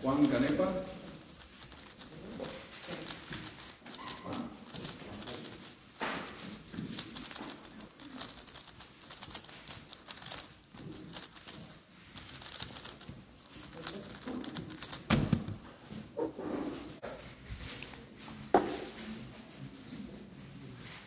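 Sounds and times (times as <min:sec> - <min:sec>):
puzzle cube plastic clicks: 0:00.0 - 0:15.6.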